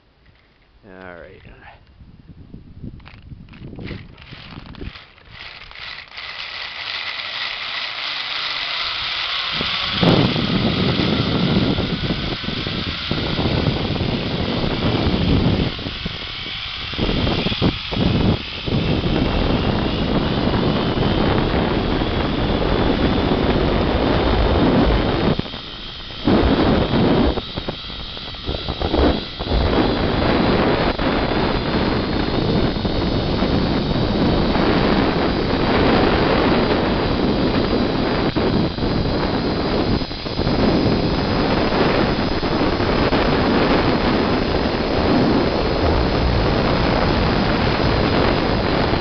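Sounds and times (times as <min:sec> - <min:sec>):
zipline pulley whine: 0:00.0 - 0:01.7, 0:02.8 - 0:49.0
wind buffeting microphone: 0:00.0 - 0:49.0.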